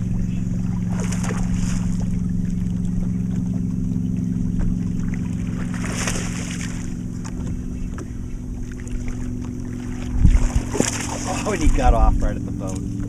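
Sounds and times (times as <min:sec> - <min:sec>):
electric motor humming: 0:00.0 - 0:13.0
fish splashing at surface: 0:05.5 - 0:06.9.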